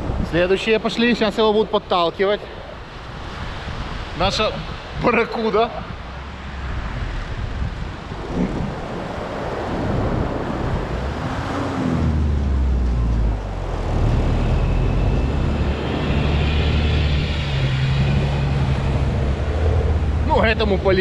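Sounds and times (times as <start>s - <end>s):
car engine driving through sand: 8.1s - 20.4s.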